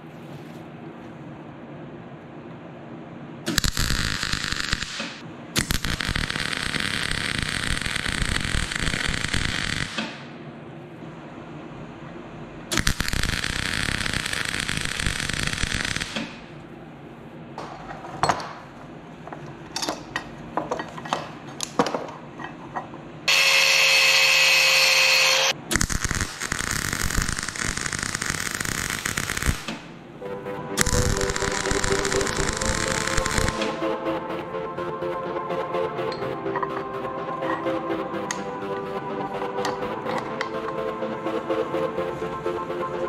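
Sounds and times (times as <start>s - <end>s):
arc welding sizzle: 3.5s - 10.2s, 12.8s - 16.5s, 23.3s - 29.9s, 30.8s - 33.8s
power tool whirring: 23.3s - 25.6s.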